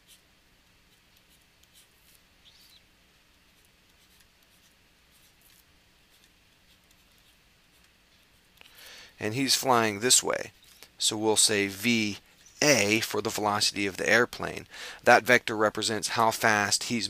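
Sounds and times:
pen scratching on paper: 0:00.0 - 0:00.2, 0:00.9 - 0:02.7, 0:03.5 - 0:08.3.

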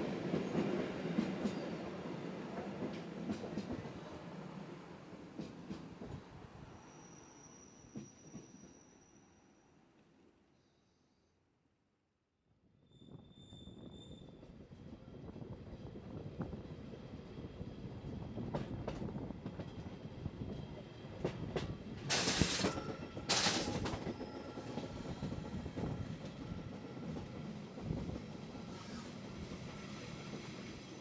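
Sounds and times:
faint wheel squeal: 0:06.7 - 0:09.6, 0:12.8 - 0:14.4, 0:28.6 - 0:29.2
train rumbling: 0:14.4 - 0:31.0.

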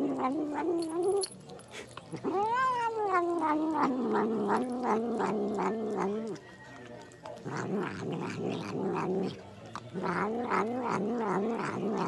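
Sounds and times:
cat yowling: 0:02.2 - 0:06.4.

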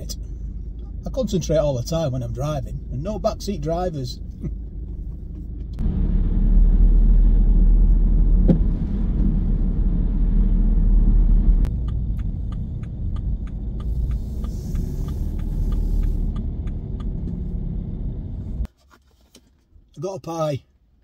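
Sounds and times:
car road and engine rumble: 0:00.0 - 0:21.0
turn signal ticking: 0:04.2 - 0:05.8, 0:11.4 - 0:18.7.

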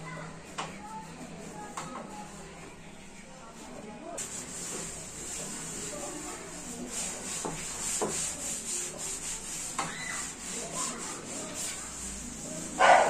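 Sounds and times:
cloth wiping metal hood: 0:04.2 - 0:13.0.

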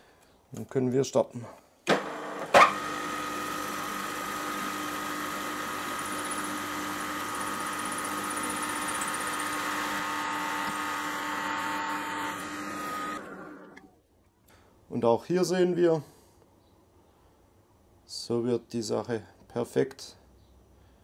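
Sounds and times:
drill press running: 0:01.9 - 0:13.9.

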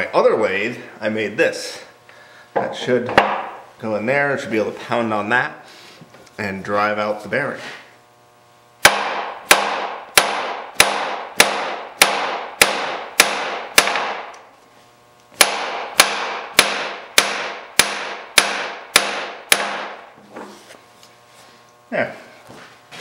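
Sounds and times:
hammer blows ringing on metal: 0:08.8 - 0:14.3, 0:15.4 - 0:20.0.

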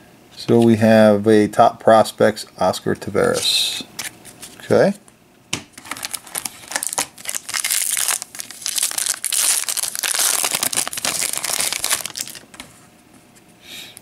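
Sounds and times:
foil wrapper crinkling: 0:05.8 - 0:12.6
foil wrapper tearing: 0:05.8 - 0:12.6.

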